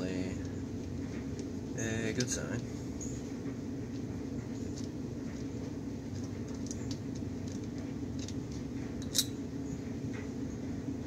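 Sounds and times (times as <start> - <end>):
low background hum: 0.0 - 11.0
screwdriver metal clicks and scrapes: 6.1 - 9.4.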